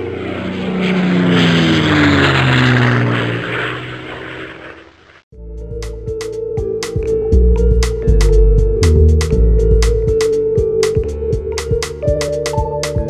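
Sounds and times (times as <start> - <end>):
aircraft flying by: 0.0 - 5.3
plucked music: 5.4 - 13.0.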